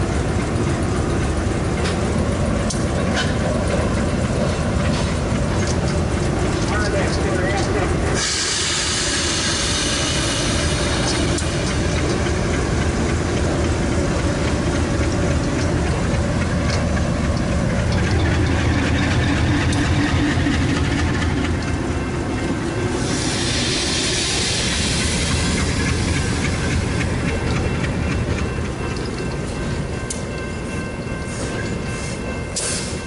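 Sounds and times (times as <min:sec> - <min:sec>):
diesel locomotive engines throbbing: 0:00.0 - 0:33.0.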